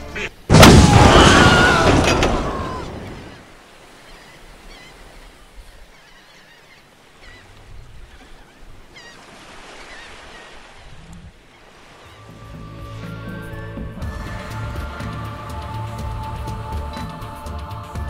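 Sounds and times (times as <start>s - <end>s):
sea surf washing: 0.0s - 17.8s
gulls crying: 0.0s - 18.0s.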